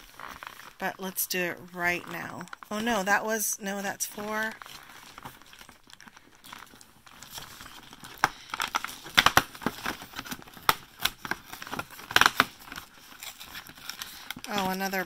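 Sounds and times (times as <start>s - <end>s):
cardboard tearing and crackling: 0.0s - 0.8s, 4.1s - 15.0s.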